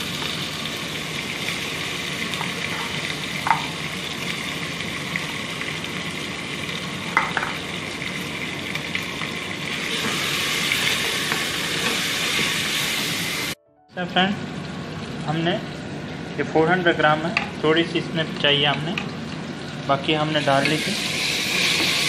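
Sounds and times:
food sizzling in hot oil: 0:00.0 - 0:13.6, 0:14.4 - 0:22.0
spoon knocking against pot: 0:02.8 - 0:03.8.

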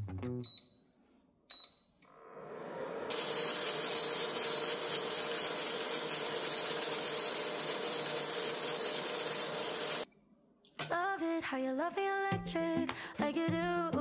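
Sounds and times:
pressure cooker venting steam: 0:03.1 - 0:10.1.

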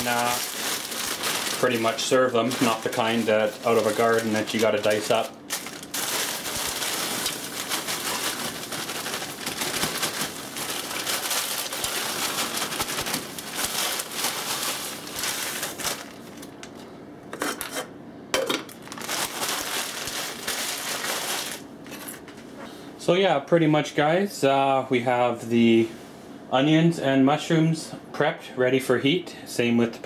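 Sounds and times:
plastic bag crinkling: 0:00.0 - 0:16.9, 0:18.7 - 0:22.3.

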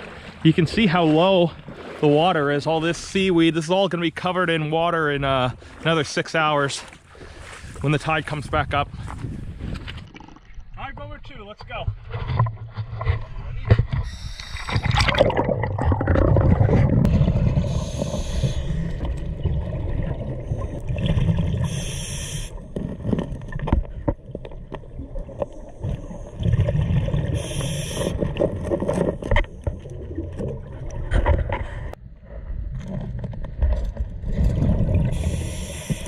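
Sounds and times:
exhaled bubbles rumbling: 0:08.9 - 0:10.8, 0:12.0 - 0:36.0
regulator breathing hiss: 0:17.6 - 0:18.8, 0:21.7 - 0:22.5, 0:27.4 - 0:28.2, 0:35.2 - 0:36.0.

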